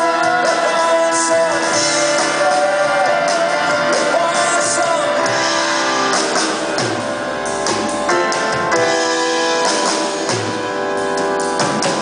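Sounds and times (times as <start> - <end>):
person singing: 0.0 - 6.2
live rock band playing: 0.0 - 12.0.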